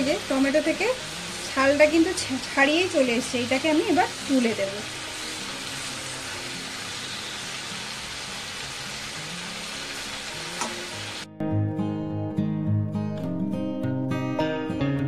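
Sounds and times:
food sizzling in oil: 0.0 - 11.3
acoustic guitar music: 0.1 - 15.0.

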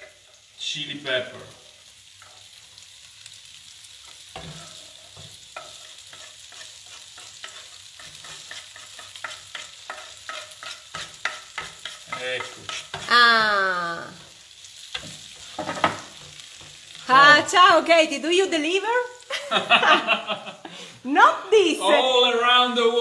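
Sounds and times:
sauce sizzling in a frying pan: 0.0 - 23.0
spatula knocking on pan: 4.4 - 13.1.

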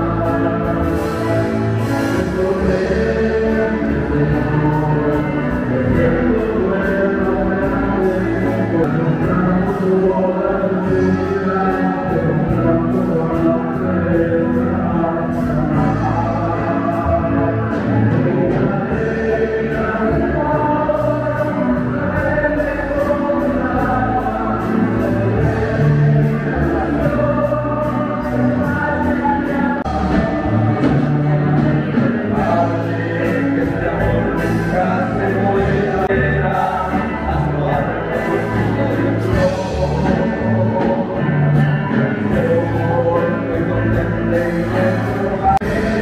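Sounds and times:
low bass line: 0.0 - 46.0.

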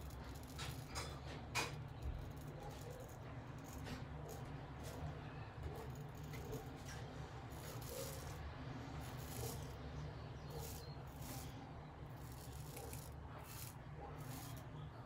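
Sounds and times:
razor scraping stubble: 0.0 - 15.0.

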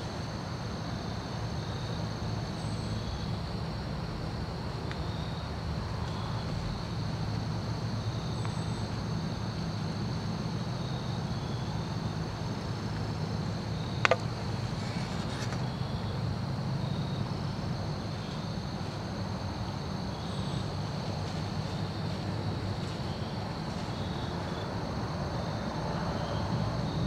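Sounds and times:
low rumble: 2.9 - 8.4.

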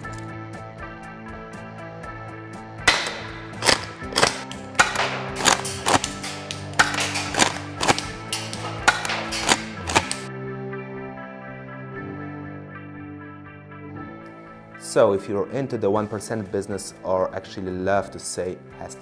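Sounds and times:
rock music: 0.0 - 14.7
airsoft shotgun firing and pumping: 2.9 - 10.3.

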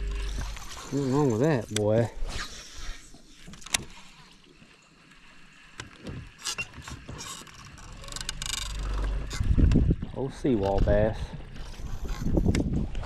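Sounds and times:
low rumble: 0.0 - 1.2, 8.4 - 13.0
fishing reel clicks and ticks: 7.7 - 9.0.

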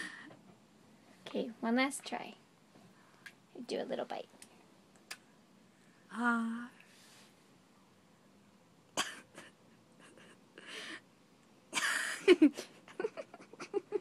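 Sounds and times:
person coughing: 9.0 - 9.6.

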